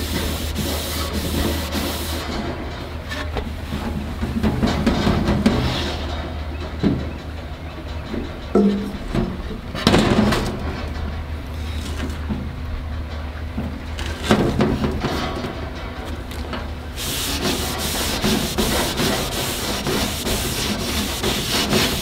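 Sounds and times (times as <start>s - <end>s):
steady low hum: 0.0s - 22.0s
metal knocks and scrapes: 2.3s - 12.5s.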